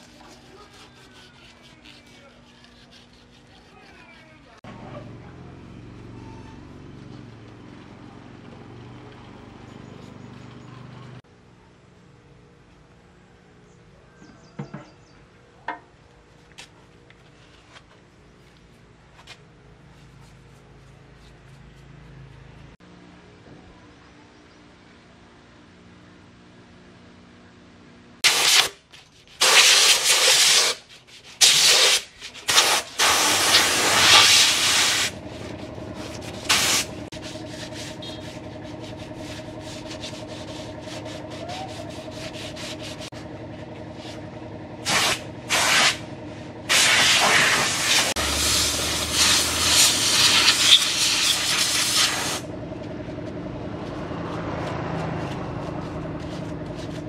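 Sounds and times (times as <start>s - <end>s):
compressed air blow gun hissing: 28.2s - 28.8s, 29.4s - 30.8s, 31.4s - 35.2s, 36.4s - 37.0s, 44.8s - 46.0s, 46.7s - 52.4s.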